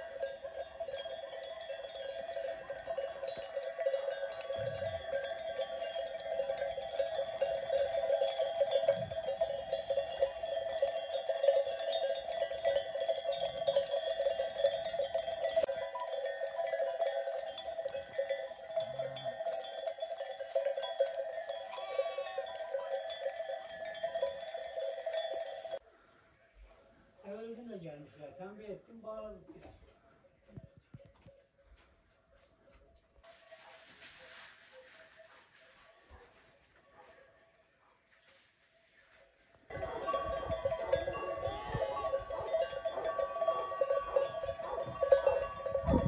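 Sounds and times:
sheep bells jingling: 0.0 - 25.8, 30.0 - 32.4, 39.7 - 46.0.

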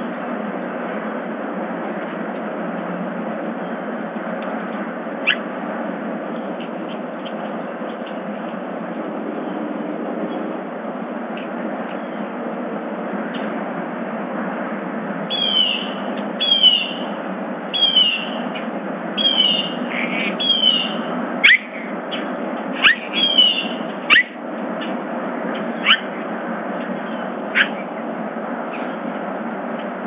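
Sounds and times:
upward-sweeping bird calls: 5.2 - 5.5, 15.3 - 17.1, 17.7 - 18.4, 19.2 - 24.4, 25.7 - 26.2, 27.0 - 27.9
bird chirps: 17.8 - 18.4, 19.2 - 24.3, 25.8 - 26.1.

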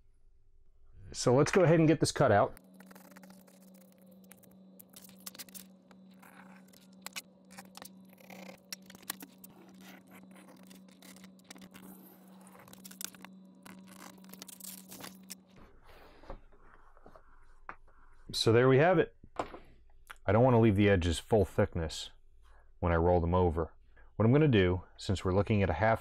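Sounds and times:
steady low hum: 0.0 - 19.3.

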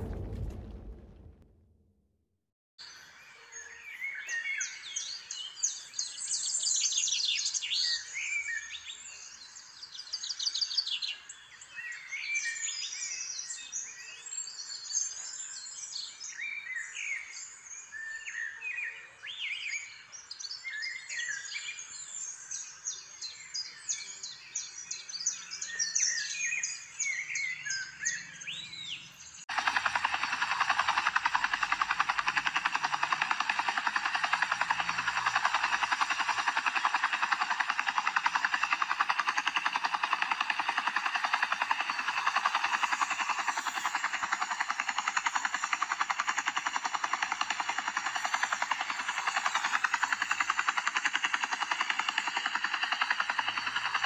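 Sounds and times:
rapid even buzzing: 29.5 - 54.0.

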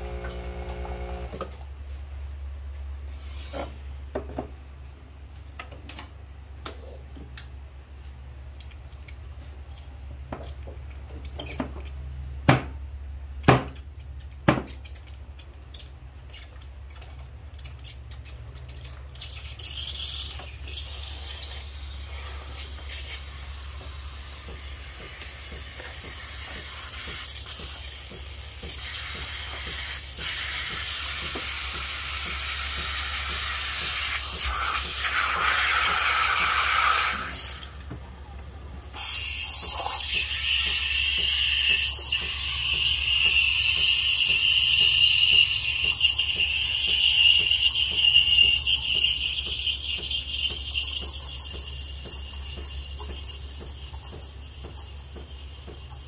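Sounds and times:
steam wand hissing: 28.8 - 37.7.

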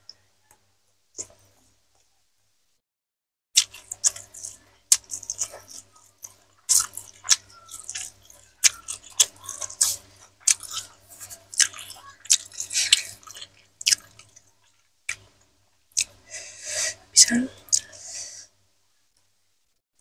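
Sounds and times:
wet sticky clicks of eating by hand: 3.6 - 16.2.

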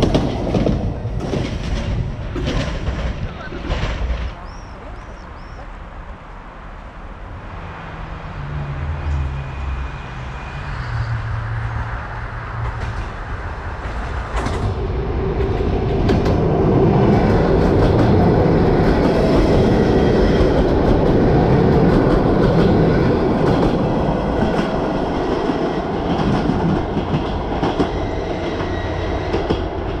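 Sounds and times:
train wheels clattering on rails: 0.0 - 4.6, 12.5 - 30.0.

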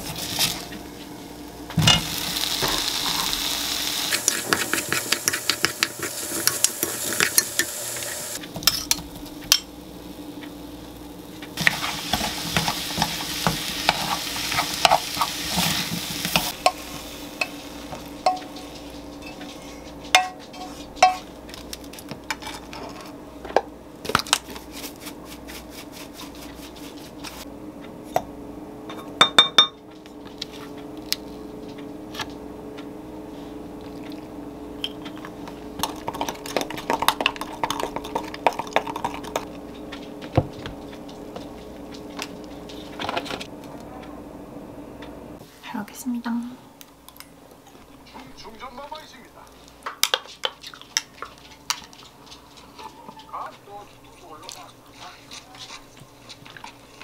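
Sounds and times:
food sizzling in a frying pan: 0.0 - 19.1
steady low hum: 0.0 - 57.0.

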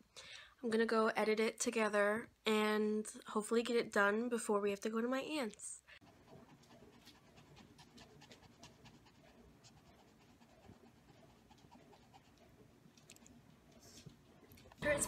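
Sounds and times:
small dog panting: 6.0 - 14.2.

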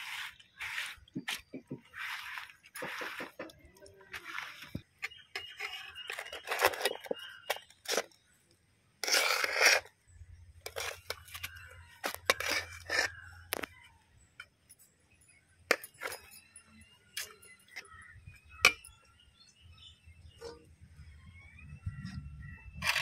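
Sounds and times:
crunchy rustling of rice: 0.0 - 8.2
metal ladle scraping pot: 4.1 - 8.1, 9.0 - 9.9, 10.6 - 13.4.

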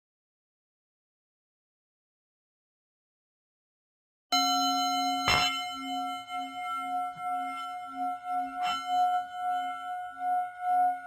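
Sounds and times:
singing bowl ringing: 4.4 - 11.0.

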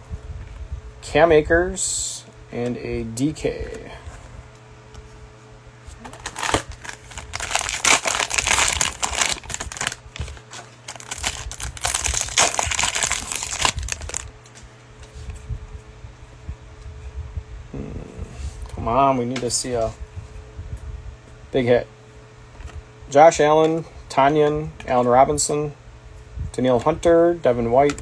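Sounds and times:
cellophane wrapper crinkling: 6.0 - 14.3.

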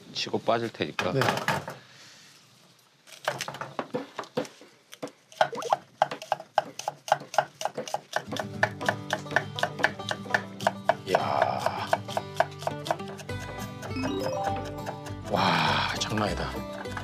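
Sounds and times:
knife chopping on wooden board: 5.4 - 15.3
background music: 8.3 - 17.0.

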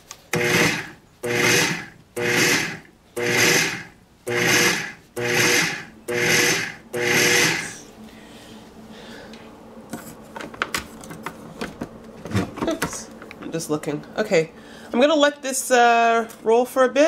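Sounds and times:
food processor pulsing: 0.3 - 7.8.

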